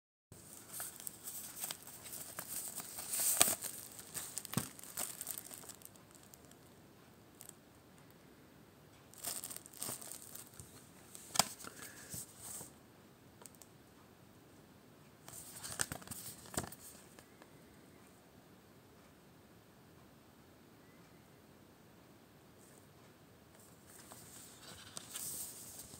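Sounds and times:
plastic shrink-wrap crackling: 0.4 - 6.7, 9.1 - 12.0.

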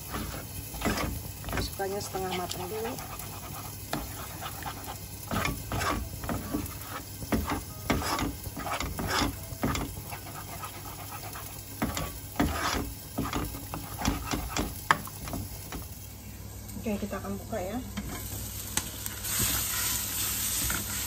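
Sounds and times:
spatula scraping a wok: 0.0 - 1.8, 2.4 - 14.8, 19.2 - 21.0
eggs frying: 0.0 - 16.4, 17.9 - 21.0.

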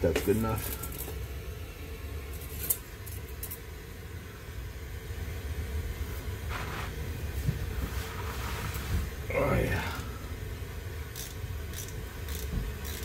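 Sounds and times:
blowtorch flame rushing: 6.0 - 10.6
wrench scraping: 11.2 - 13.0.

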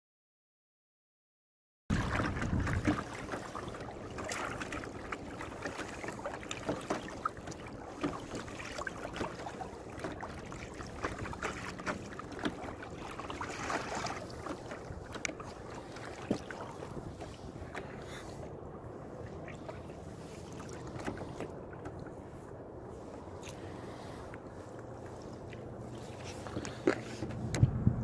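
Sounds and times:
wind rumbling on microphone: 1.9 - 5.3, 10.4 - 28.0
small splashes: 1.9 - 27.4
water lapping against kayak hull: 1.9 - 28.0.

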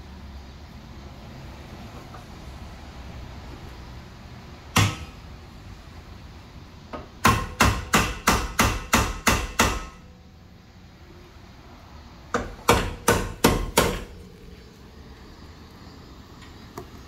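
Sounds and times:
hammer striking metal: 4.7 - 5.2, 7.2 - 10.1, 12.3 - 14.1.

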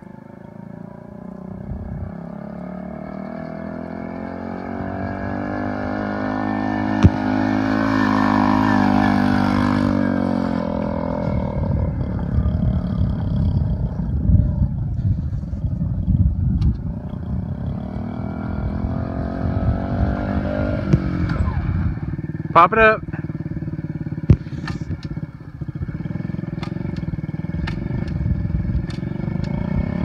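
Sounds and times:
low fluttering rumble: 0.0 - 2.8, 9.2 - 30.0
quad engine driving past: 0.0 - 30.0.

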